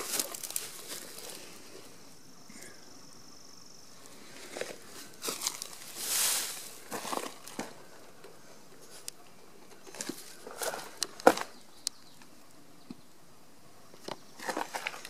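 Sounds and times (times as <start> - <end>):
footsteps crunching on gravel: 0.0 - 1.4, 4.3 - 7.8.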